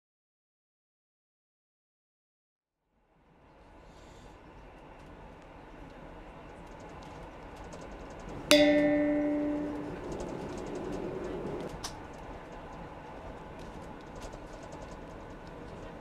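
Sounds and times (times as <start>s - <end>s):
standing train hum: 8.2s - 14.0s
bell-like chime: 8.4s - 11.6s.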